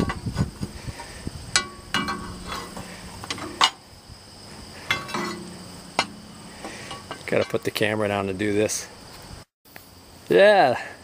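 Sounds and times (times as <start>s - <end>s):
crowbar clanking on metal: 1.0s - 3.8s, 4.8s - 7.9s.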